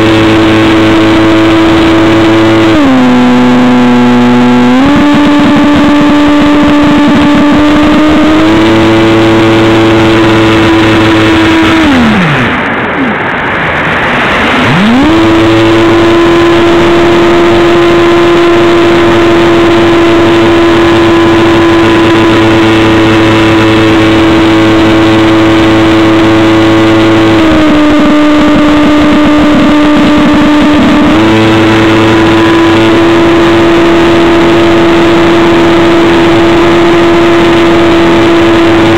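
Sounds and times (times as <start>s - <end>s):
electric motor and propeller whine: 0.0s - 38.9s
wind rushing over microphone: 0.0s - 38.9s.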